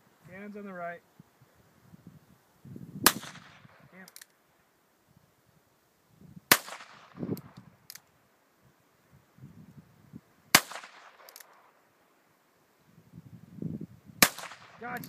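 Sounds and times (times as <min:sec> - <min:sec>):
handgun shots echoing: 0:06.5 - 0:07.5, 0:10.6 - 0:11.6, 0:14.2 - 0:15.0.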